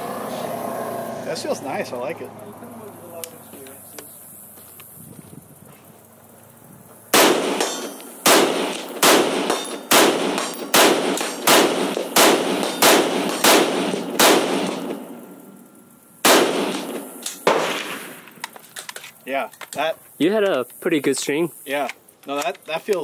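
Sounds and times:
rifle shots with echo: 7.1s - 15.2s, 16.2s - 18.3s.

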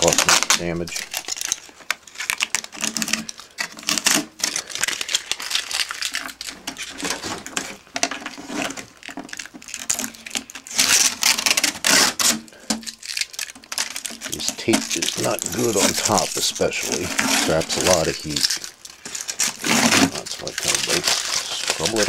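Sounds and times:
foil tape crackling as peeled: 0.0s - 22.0s.

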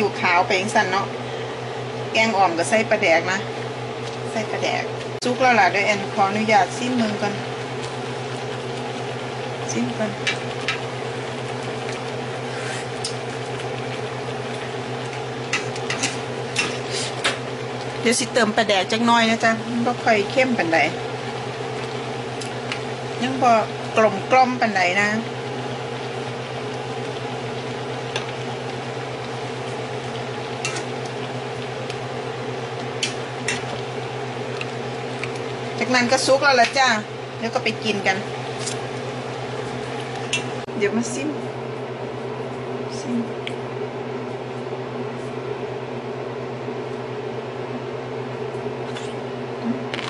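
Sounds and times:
appliance motor humming: 0.0s - 44.5s
curry simmering: 6.0s - 18.4s, 19.6s - 36.5s.

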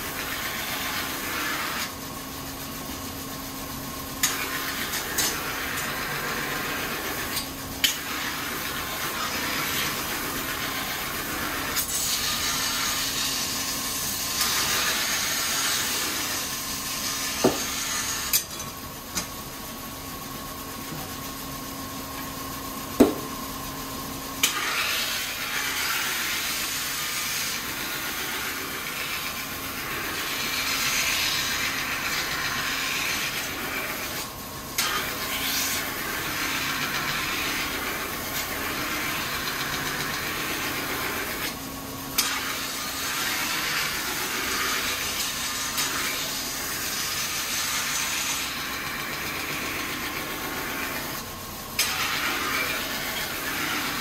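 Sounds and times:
knife scraping on whetstone wheel: 24.4s - 41.5s, 51.8s - 54.0s.

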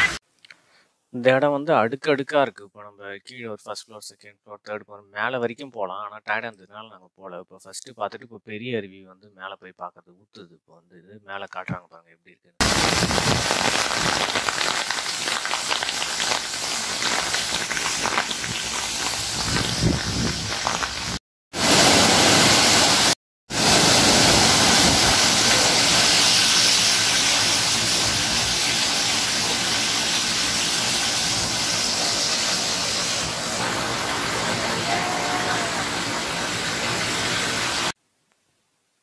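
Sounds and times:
waterfall rushing over rocks: 21.6s - 37.9s.

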